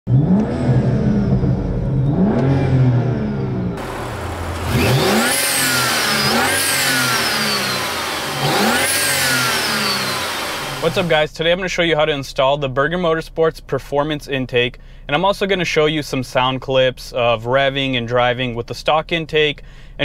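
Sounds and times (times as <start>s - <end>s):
car engine revving: 0.1s - 11.2s.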